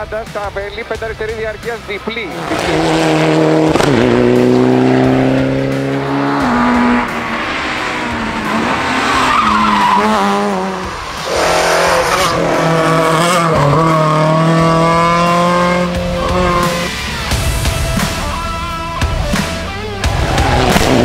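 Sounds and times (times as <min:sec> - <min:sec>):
rally car engines revving: 0:01.0 - 0:21.0
tyre squeal: 0:09.0 - 0:10.6.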